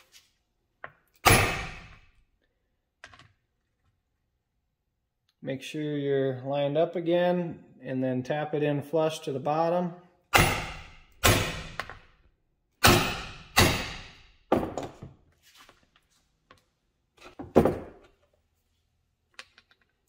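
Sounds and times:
hammer striking metal: 1.2s - 2.0s, 10.3s - 11.8s, 12.8s - 14.2s.

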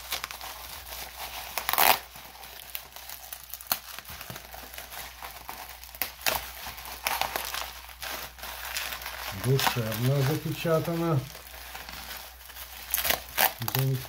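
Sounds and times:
bubble wrap crinkling: 0.0s - 14.0s.

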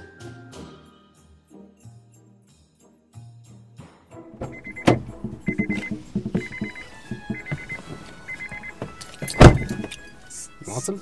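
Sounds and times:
car door warning chime: 4.4s - 10.2s.

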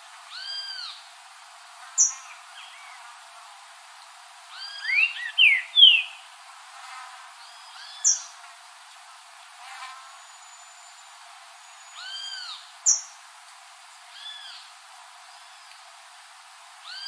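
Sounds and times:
bird whistling song: 4.6s - 6.2s.

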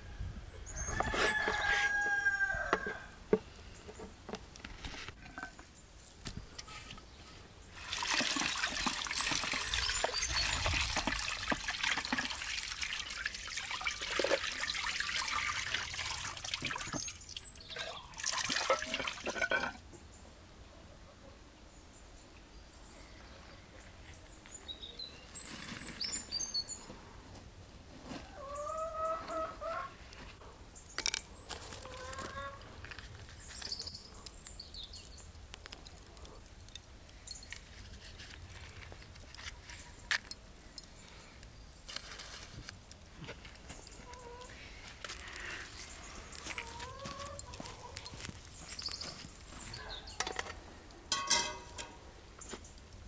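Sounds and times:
tap water splashing into bowl: 7.9s - 17.1s
chickens calling: 28.1s - 30.5s, 31.5s - 32.9s, 43.7s - 50.8s.

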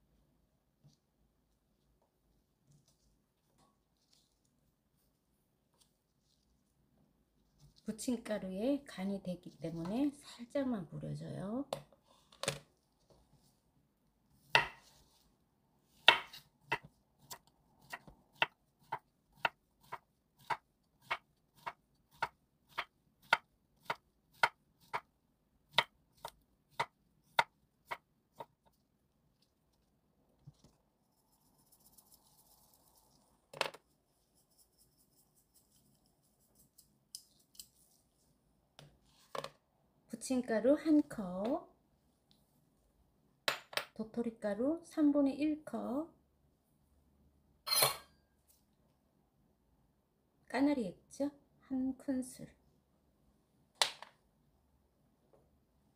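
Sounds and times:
knife chopping on wooden board: 14.5s - 14.9s, 16.0s - 25.0s.

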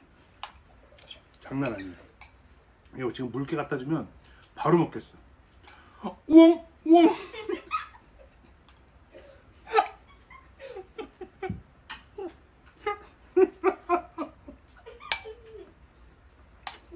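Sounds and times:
metal spoon clinking ceramic bowl: 1.6s - 2.5s, 5.6s - 5.9s, 8.6s - 8.9s, 15.1s - 15.4s, 16.6s - 16.9s
man laughing and chuckling: 6.9s - 8.5s, 9.2s - 15.8s.

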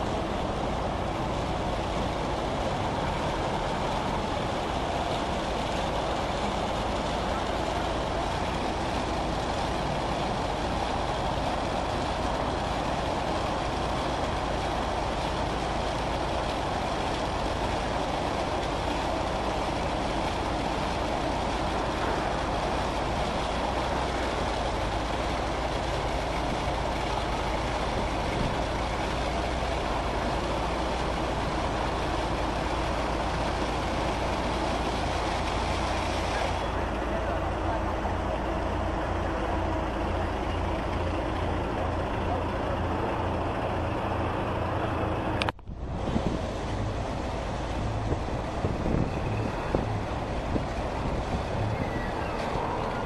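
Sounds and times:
water spraying: 0.0s - 38.4s
low machine rumble: 0.0s - 53.0s.

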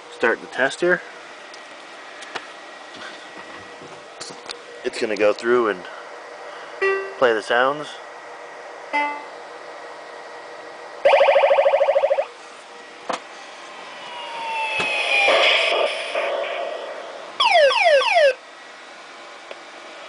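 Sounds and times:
falling tone under noise: 13.6s - 18.3s.

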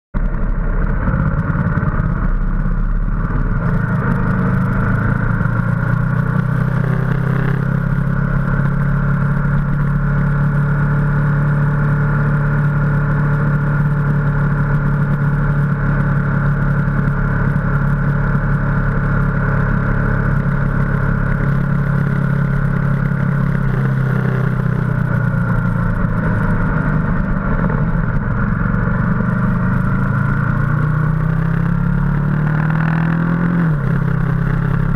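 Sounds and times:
motorcycle engine running: 0.2s - 34.9s.

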